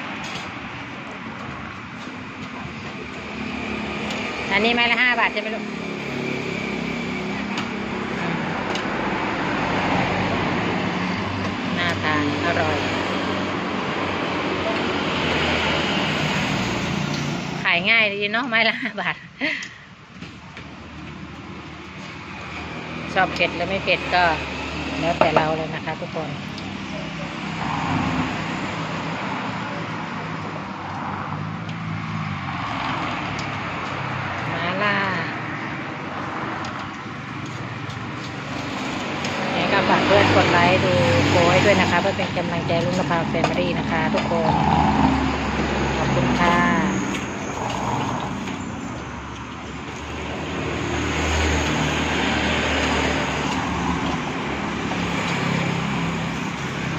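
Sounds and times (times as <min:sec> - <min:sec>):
road traffic noise: 0:00.0 - 0:56.9
vehicle engine hum: 0:00.0 - 0:56.9.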